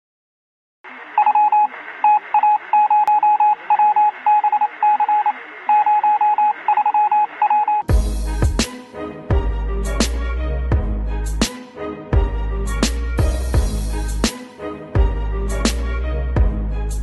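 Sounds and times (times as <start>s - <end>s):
morse code beeping tone: 1.2s - 7.9s
intro music with heavy hit: 7.9s - 16.8s.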